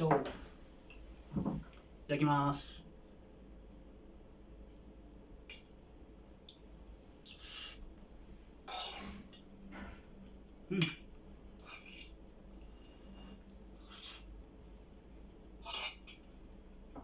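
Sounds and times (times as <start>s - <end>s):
spoon scraping on ceramic plate: 8.7s - 9.4s, 11.6s - 12.2s, 15.6s - 16.2s.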